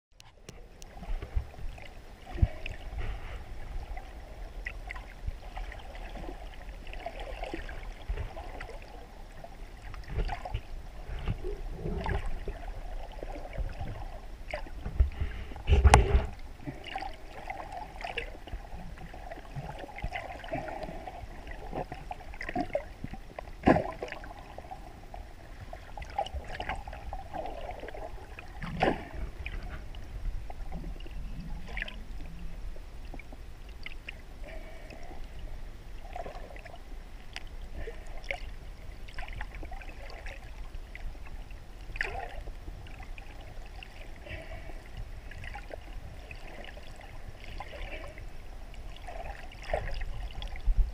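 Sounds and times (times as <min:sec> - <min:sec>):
underwater rumble of moving water: 0:00.2 - 0:50.9
underwater clicks and knocks: 0:13.6 - 0:17.0.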